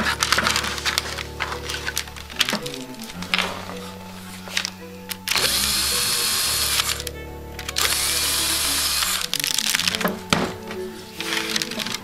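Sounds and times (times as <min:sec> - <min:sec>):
background music: 0:00.0 - 0:12.0
electric drill running: 0:05.3 - 0:07.1, 0:07.7 - 0:09.4.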